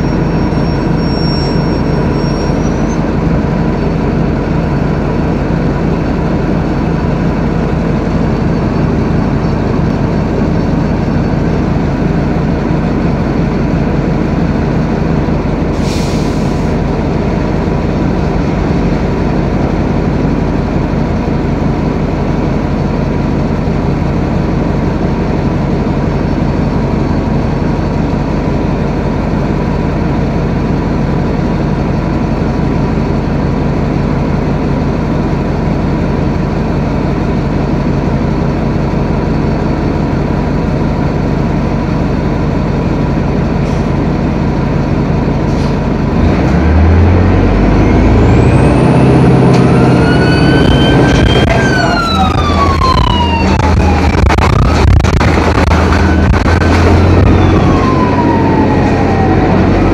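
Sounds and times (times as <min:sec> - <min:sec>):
bus diesel engine droning: 0:00.0 - 0:59.9
siren rising in pitch: 0:48.2 - 0:59.9.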